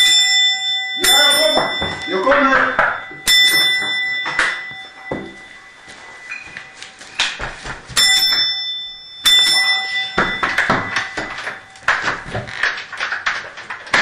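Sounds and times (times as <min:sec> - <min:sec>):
doorbell ding: 0:00.0 - 0:12.6
knocks and clatter: 0:10.0 - 0:14.0.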